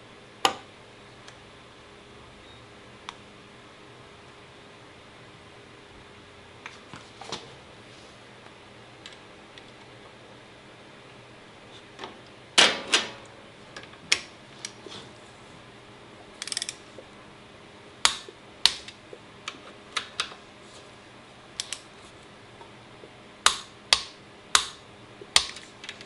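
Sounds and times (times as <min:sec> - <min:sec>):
ratchet metallic clicks: 0:16.4 - 0:16.8.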